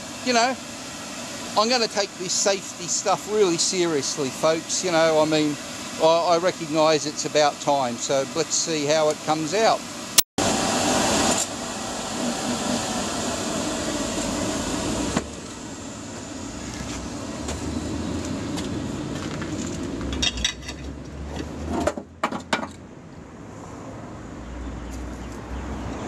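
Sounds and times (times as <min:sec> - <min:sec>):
electric blower whirring hum: 0:10.4 - 0:20.0
low furnace rumble: 0:10.4 - 0:20.7.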